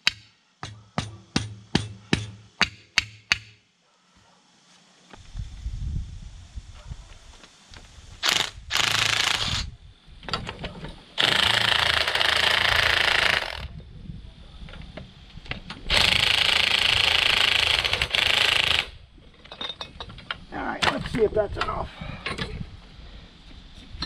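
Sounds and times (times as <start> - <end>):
impact wrench hammering: 0.0 - 3.6.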